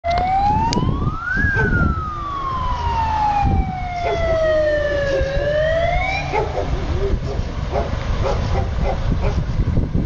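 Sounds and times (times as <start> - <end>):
fire siren wailing: 0.0 - 7.4.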